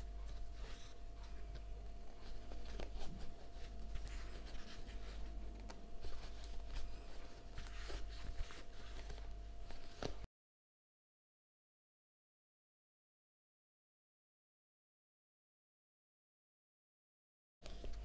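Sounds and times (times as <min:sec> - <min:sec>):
crochet yarn scratchy rustling: 0:00.0 - 0:10.3
faint steady hum: 0:00.0 - 0:10.3.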